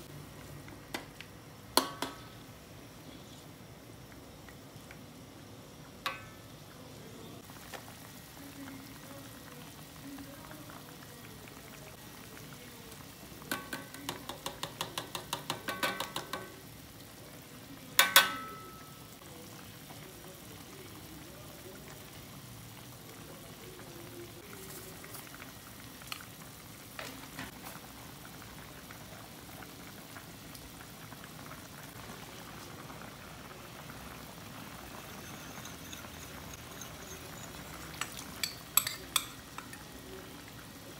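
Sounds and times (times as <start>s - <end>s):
sauce simmering and bubbling: 0.0s - 17.9s, 18.8s - 40.9s
metal clanking on pan: 1.8s - 2.3s, 6.0s - 6.4s, 13.5s - 16.6s, 18.0s - 19.0s, 35.1s - 39.9s
spatula clicking in pan: 13.5s - 16.6s, 35.6s - 39.8s.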